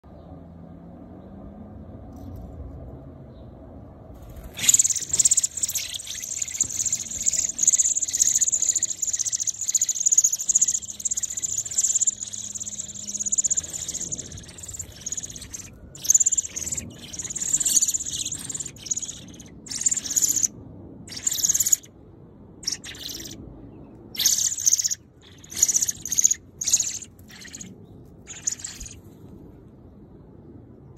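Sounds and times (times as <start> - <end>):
nestlings chirping shrilly: 4.2 - 20.5, 21.1 - 21.9, 22.6 - 23.4, 24.1 - 29.0.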